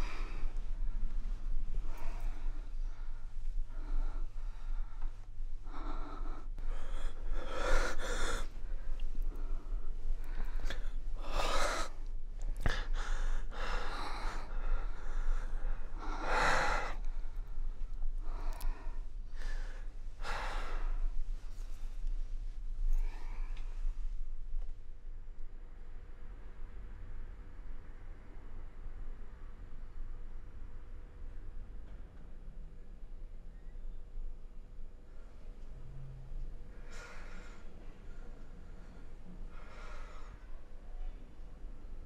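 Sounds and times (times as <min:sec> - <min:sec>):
person gasping breaths: 0:00.0 - 0:22.0, 0:36.8 - 0:40.7.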